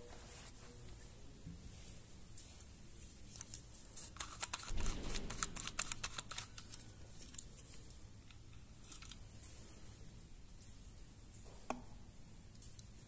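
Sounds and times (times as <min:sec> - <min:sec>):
plastic sprayer clicks and rattles: 0:03.4 - 0:07.4.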